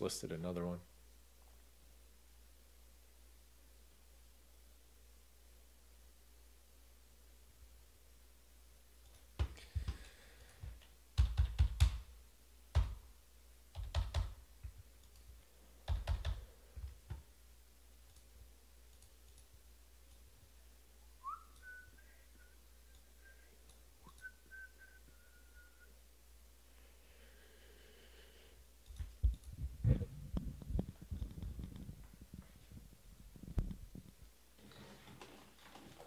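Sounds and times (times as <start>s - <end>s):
faint whistled notes: 21.2s - 26.0s.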